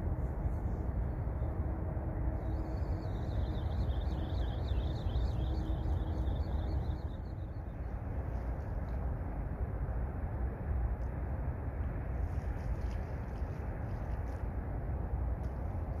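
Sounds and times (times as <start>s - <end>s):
low outdoor rumble: 0.0s - 16.0s
faint wavering high chirping: 2.4s - 7.9s.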